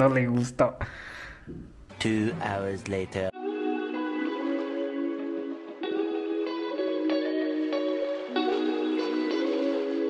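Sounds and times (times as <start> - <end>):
plucked guitar music: 3.4 - 10.0.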